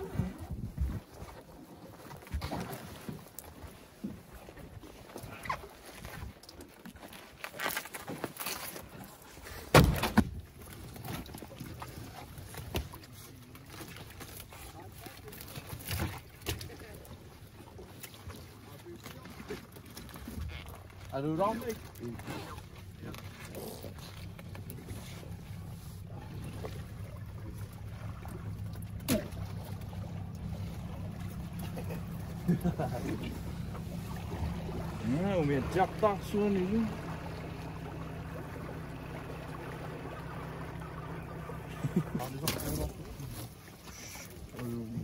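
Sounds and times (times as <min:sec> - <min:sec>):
outboard motor idling: 0:00.0 - 0:45.0
heavy thuds on boat: 0:09.7 - 0:10.4.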